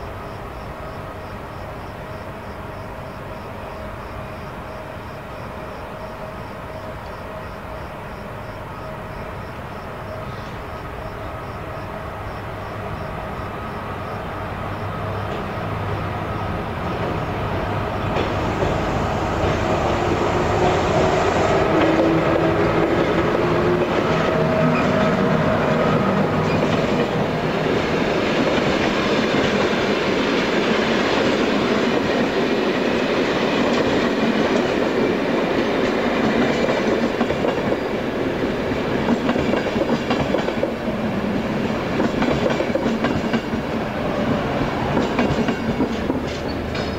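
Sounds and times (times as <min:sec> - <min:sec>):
train rumbling: 0:00.0 - 0:46.9
wheels clicking over rail joints: 0:45.0 - 0:46.9.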